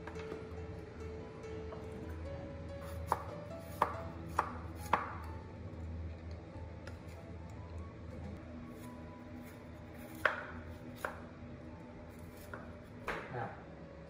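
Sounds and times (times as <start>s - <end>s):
steady low hum: 0.0s - 14.0s
knife chopping on cutting board: 2.8s - 5.3s, 8.8s - 11.2s, 12.2s - 13.3s.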